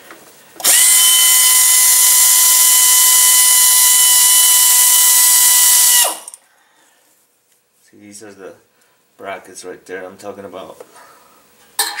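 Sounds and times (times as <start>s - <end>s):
air ratchet whine and hiss: 0.6s - 6.4s.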